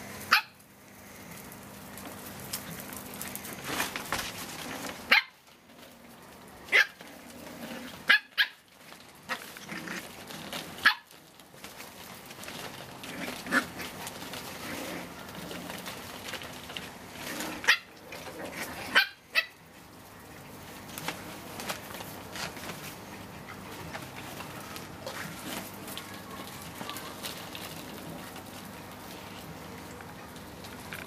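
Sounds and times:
puppies yapping: 4.9 - 5.5, 6.7 - 7.1, 7.9 - 29.4.

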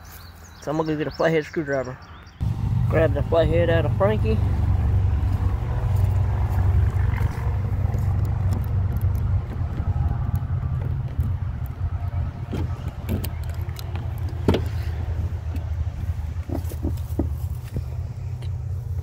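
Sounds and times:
low rumble: 2.4 - 16.5.

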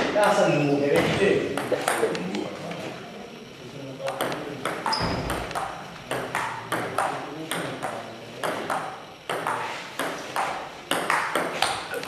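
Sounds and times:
ball bouncing on table: 1.0 - 2.2, 4.0 - 12.0
table tennis ball clicking off paddles: 4.0 - 12.0.

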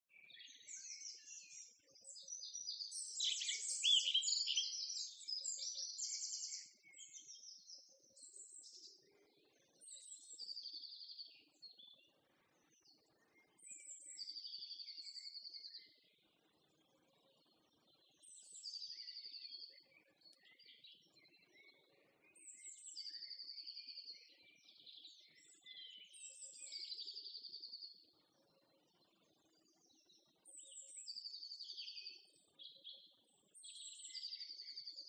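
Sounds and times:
songbirds chirping and trilling: 0.1 - 35.0.

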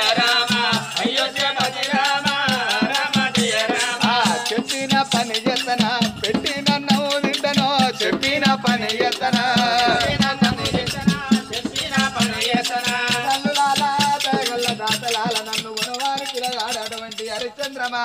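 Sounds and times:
barrel drum beat: 0.0 - 18.0
jingling rattle rhythm: 0.0 - 18.0
person singing folk melody: 0.0 - 18.0.

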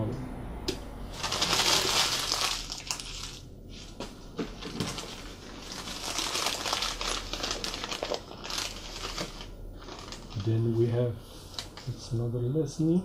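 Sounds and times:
newspaper crumpling: 1.1 - 3.9, 4.6 - 10.7.

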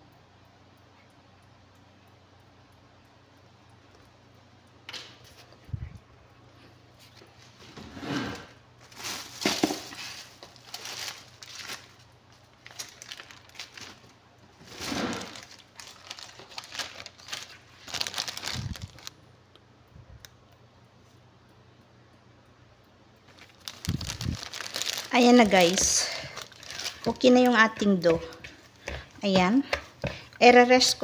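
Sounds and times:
crinkling and rustling: 6.6 - 19.2, 23.2 - 31.0.

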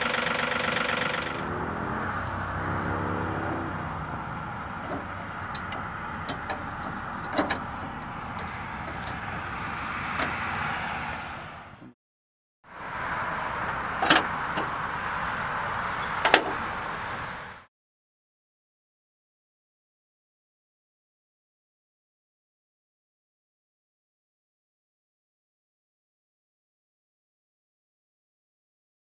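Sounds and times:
steady low rumble: 1.2 - 11.9
metal clicks and clanks: 4.8 - 9.5, 10.1 - 10.6, 14.0 - 14.7, 16.2 - 16.6.

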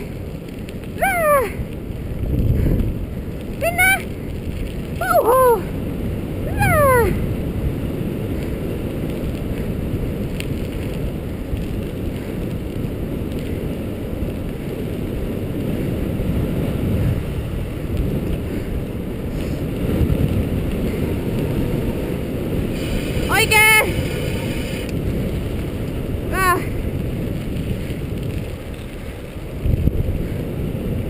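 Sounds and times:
tyres rolling over dirt trail: 0.0 - 31.0
wind buffeting microphone: 0.0 - 31.0.

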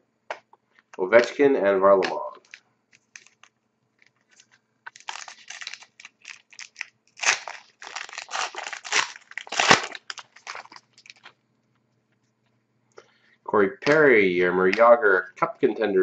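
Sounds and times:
wrapper tearing and crinkling: 2.0 - 11.4.

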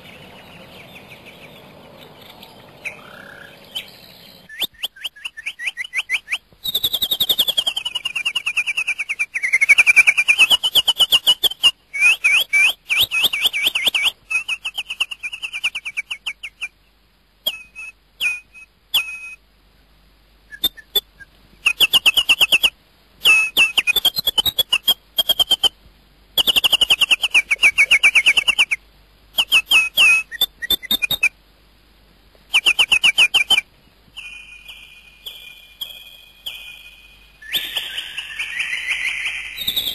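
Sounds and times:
bird chattering trills: 0.0 - 11.7, 34.2 - 39.9
bird whistle falling and rising: 2.8 - 16.7, 32.5 - 33.6, 34.2 - 39.9.

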